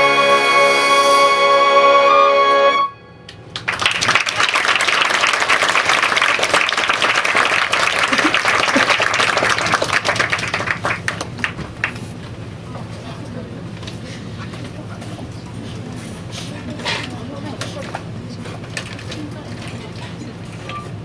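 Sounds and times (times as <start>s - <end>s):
big band brass chord: 0.0s - 3.3s
audience applause: 3.5s - 12.1s.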